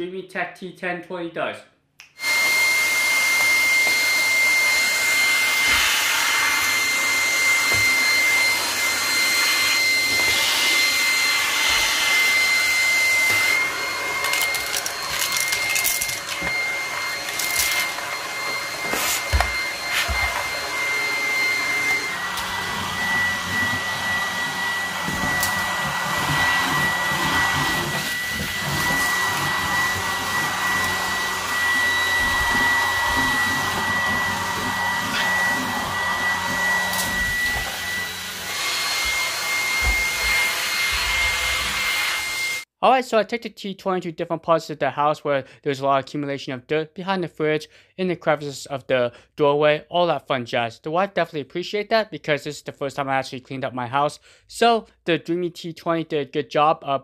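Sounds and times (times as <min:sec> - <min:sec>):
stick vacuum motor whine: 0:02.1 - 0:42.6.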